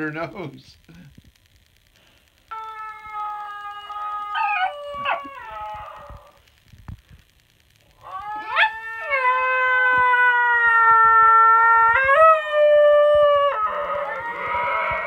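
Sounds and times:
dog howling yodel: 0:02.5 - 0:06.4, 0:08.0 - 0:15.0.

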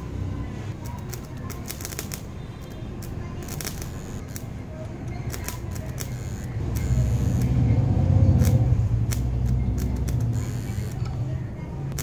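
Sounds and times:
welding arc crackles: 0:00.8 - 0:04.6, 0:05.2 - 0:07.6, 0:08.3 - 0:11.1
transformer buzzing: 0:03.0 - 0:11.3.

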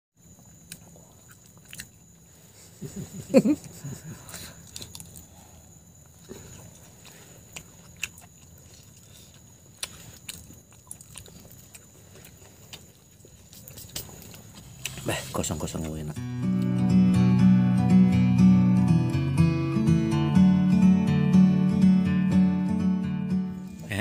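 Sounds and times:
quiet chewing: 0:00.4 - 0:16.7.

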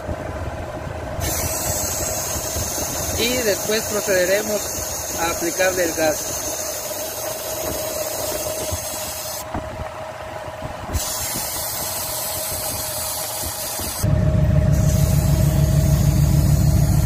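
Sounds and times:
refrigerant hissing from hose: 0:01.2 - 0:09.6, 0:10.9 - 0:14.1, 0:14.7 - 0:17.0
car engine idling: 0:14.0 - 0:17.0.

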